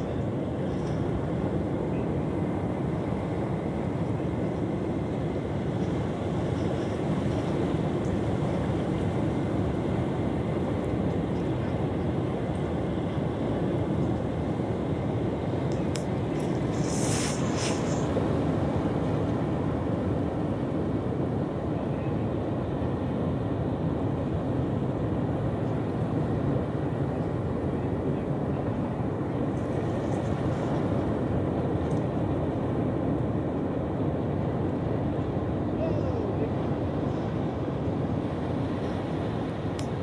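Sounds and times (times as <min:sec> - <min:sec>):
wind: 0:00.0 - 0:40.0
surf: 0:00.7 - 0:21.6
brief high hiss: 0:16.7 - 0:18.1.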